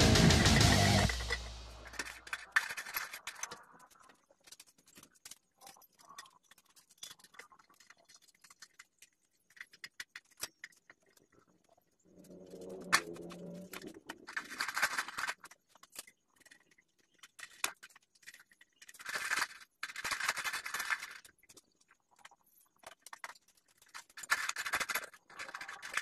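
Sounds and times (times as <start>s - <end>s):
loud rock music: 0.0s - 1.9s
metal parts clicking and scraping: 0.0s - 26.0s.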